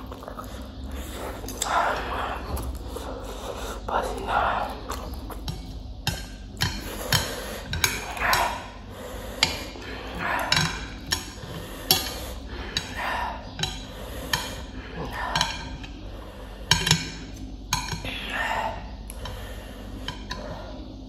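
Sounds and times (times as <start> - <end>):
chewing: 0.0 - 8.7
chopsticks clicking on a plate: 9.4 - 14.7, 15.3 - 16.0, 20.0 - 20.6.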